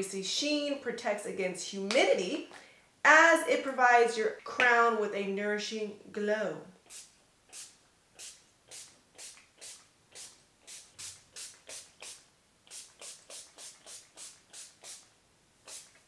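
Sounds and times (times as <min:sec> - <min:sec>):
spray bottle hissing spurts: 0:06.8 - 0:16.0.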